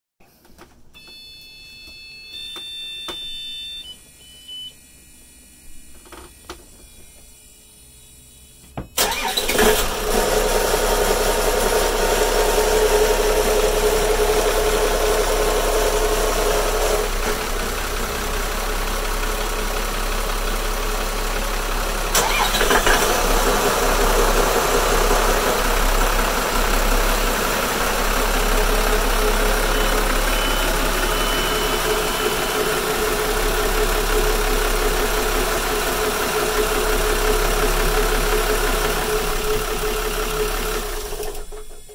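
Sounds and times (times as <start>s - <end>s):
diesel engine starting: 9.0s - 41.9s
diesel engines idling: 9.0s - 41.9s.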